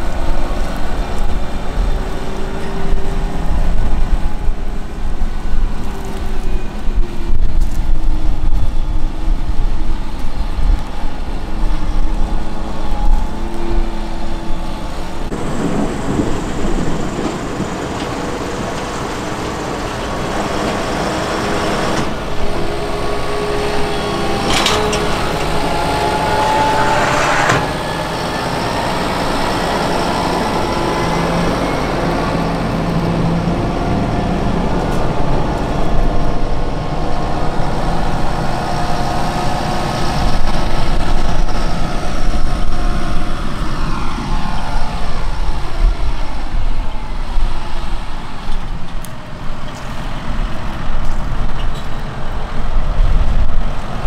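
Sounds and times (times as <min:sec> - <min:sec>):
tractor diesel engine running: 0:00.0 - 0:54.0
potato harvester working: 0:16.7 - 0:44.5.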